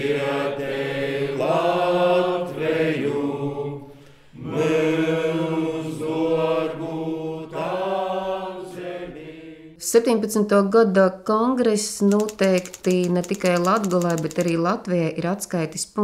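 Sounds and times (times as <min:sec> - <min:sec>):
low voices singing a hymn: 0:00.0 - 0:09.8.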